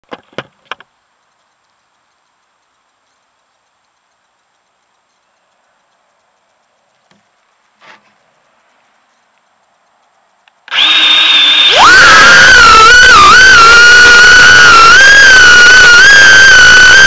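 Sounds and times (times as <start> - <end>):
sharp clicks: 0.0 - 7.6, 8.3 - 17.0
faint steady hiss: 0.0 - 10.7.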